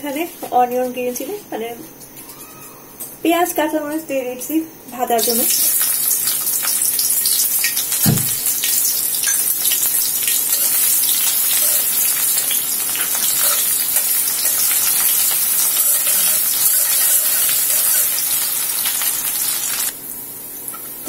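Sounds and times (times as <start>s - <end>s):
onions sizzling in hot oil: 5.2s - 21.0s
dull knock: 8.1s - 8.4s.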